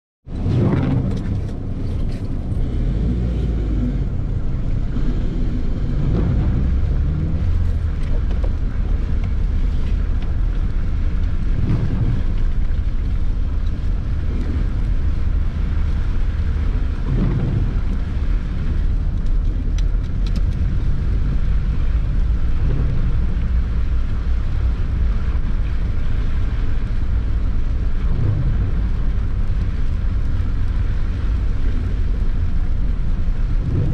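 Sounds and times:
engine and tyres rumbling: 0:00.2 - 0:33.9.

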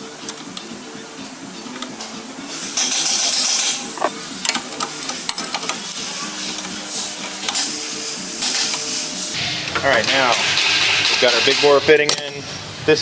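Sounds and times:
wrench clicking and scraping: 0:02.8 - 0:07.8.

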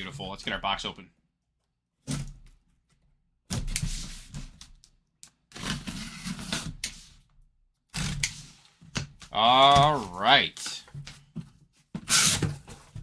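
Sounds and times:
packing tape being slit and scraped: 0:03.5 - 0:07.3, 0:07.9 - 0:08.7, 0:12.0 - 0:13.0.

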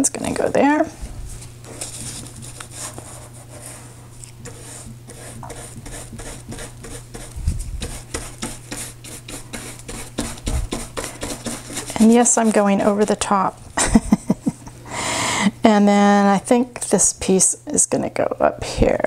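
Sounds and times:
paper handled: 0:01.3 - 0:04.6
brush scrubbing paper: 0:01.7 - 0:13.6.

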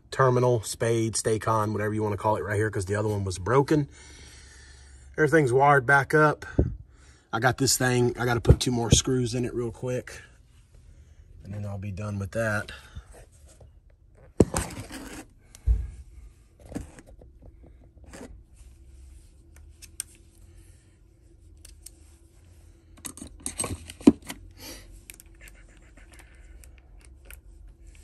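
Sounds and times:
faint steady hum: 0:00.0 - 0:28.0
tools scraping and clattering: 0:23.0 - 0:24.4.

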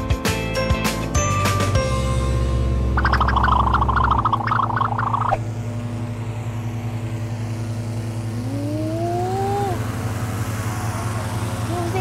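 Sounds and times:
engine-driven fan humming: 0:00.6 - 0:12.0
short rising tone: 0:02.6 - 0:05.5.

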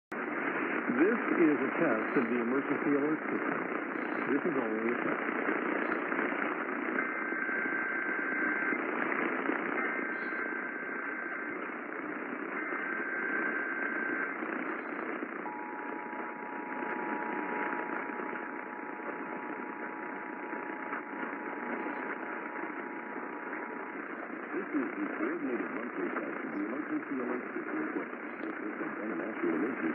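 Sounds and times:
radio static: 0:00.1 - 0:29.9
data tone bursts: 0:07.0 - 0:08.9, 0:09.7 - 0:11.8, 0:12.5 - 0:14.4, 0:15.4 - 0:25.3
two-tone attention signal: 0:15.4 - 0:23.9.

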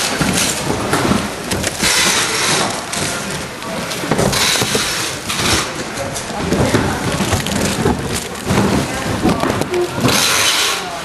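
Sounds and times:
light packing knocks: 0:00.0 - 0:10.2
plastic bags crinkling: 0:00.0 - 0:11.0.

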